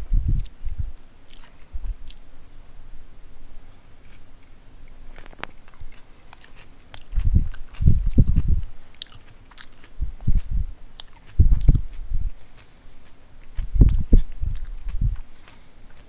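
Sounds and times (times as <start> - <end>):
low chewing thuds: 0.0 - 2.4, 3.6 - 16.0
person chewing sandwich: 1.2 - 2.3, 3.7 - 16.0
wet mouth clicks and smacks: 5.2 - 12.0, 12.6 - 16.0.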